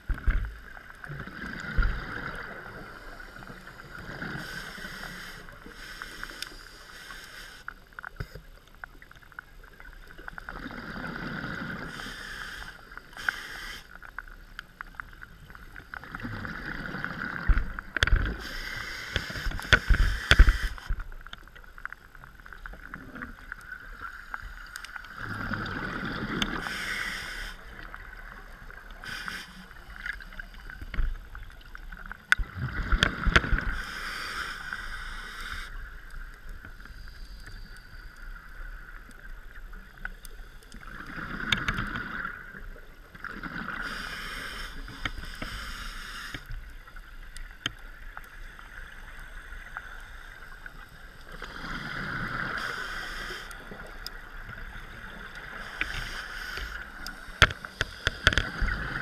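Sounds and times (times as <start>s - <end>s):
regulator inhale hiss: 1.8s - 8.4s, 10.8s - 14.5s, 18.2s - 21.0s, 23.9s - 31.2s, 33.2s - 38.9s, 43.7s - 46.9s, 48.2s - 59.0s.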